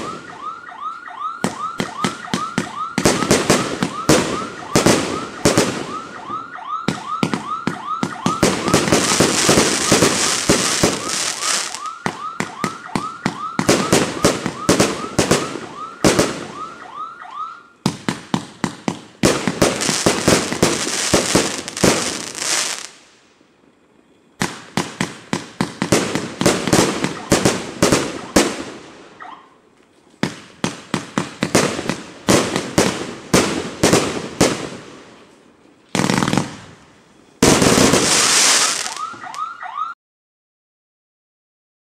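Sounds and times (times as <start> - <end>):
firework whistles: 1.4 - 16.8, 19.3 - 29.4, 36.0 - 39.4
firework volleys: 8.0 - 16.6, 17.9 - 23.1, 36.0 - 39.2.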